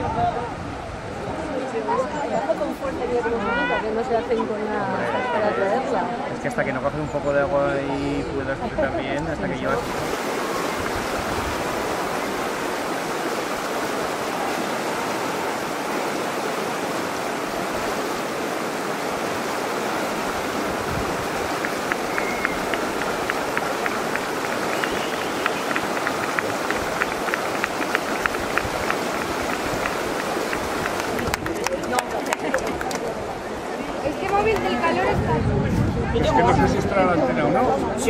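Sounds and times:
water rushing over rapids: 0:07.5 - 0:35.4.

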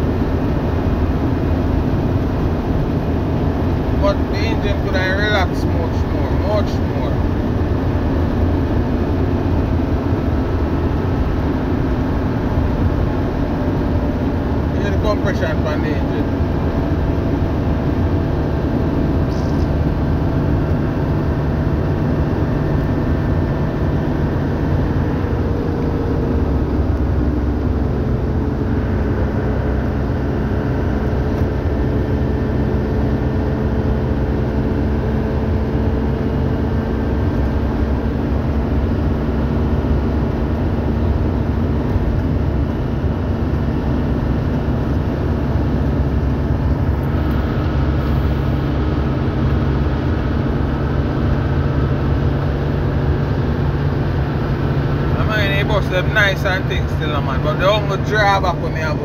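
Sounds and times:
bus engine humming: 0:00.0 - 0:59.0
faint engine whine: 0:00.0 - 0:59.0.

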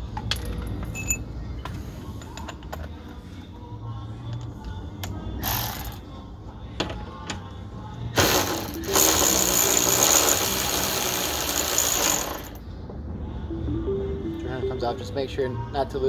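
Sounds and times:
power ratchet whirring: 0:08.2 - 0:12.6.

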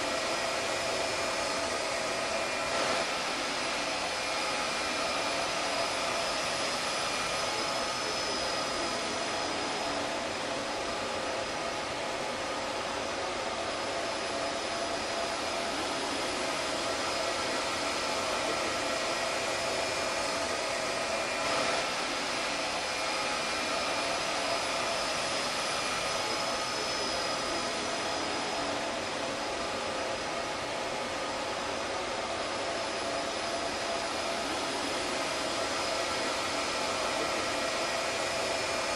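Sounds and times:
server cooling fans whirring: 0:00.0 - 0:38.9.

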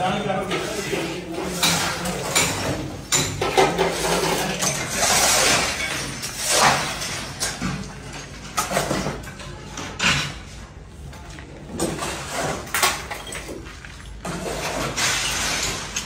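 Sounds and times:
rubble clinking and crunching: 0:11.4 - 0:16.0.

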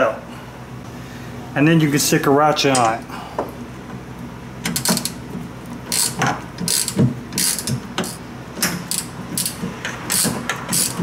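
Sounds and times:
hand ratchet clicking: 0:04.7 - 0:05.2, 0:05.9 - 0:08.2, 0:08.9 - 0:11.0.

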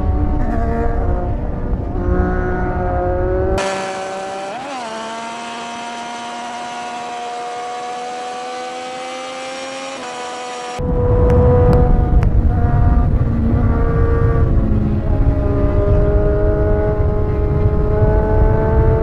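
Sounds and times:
motorcycle engine revving high: 0:00.0 - 0:19.0
wind rush on microphone: 0:10.6 - 0:19.0.

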